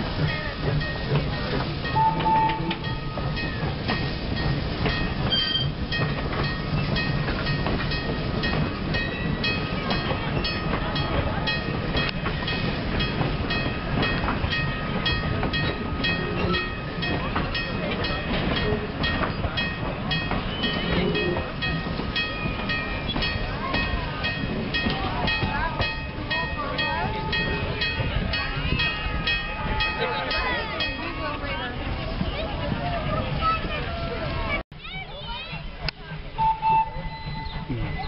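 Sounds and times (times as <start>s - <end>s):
train coaches rumbling: 0.0s - 38.0s.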